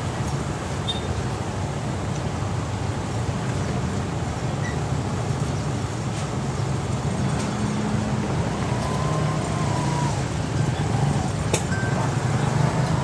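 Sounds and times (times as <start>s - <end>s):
motorbike and car engines: 5.0s - 13.0s.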